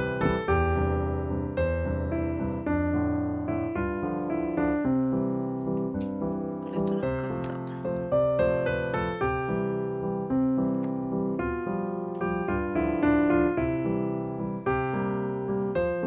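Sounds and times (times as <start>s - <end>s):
piano melody: 0.0s - 16.0s.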